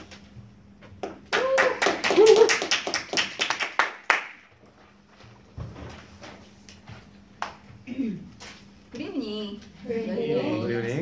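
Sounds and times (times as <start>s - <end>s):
audience clapping: 1.2s - 4.5s.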